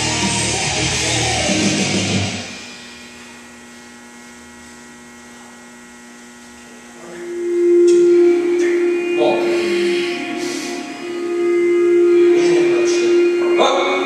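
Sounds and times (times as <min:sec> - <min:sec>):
heavy rock music: 0:00.0 - 0:03.1, 0:07.2 - 0:14.0
electrical hum: 0:00.0 - 0:14.0
loud steady tone: 0:00.0 - 0:14.0.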